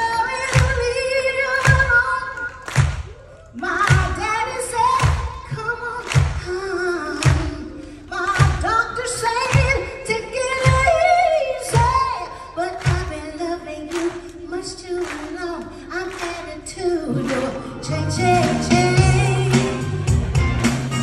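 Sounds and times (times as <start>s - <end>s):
woman singing: 0.0s - 2.7s, 3.5s - 20.2s
soul band playing: 17.1s - 21.0s.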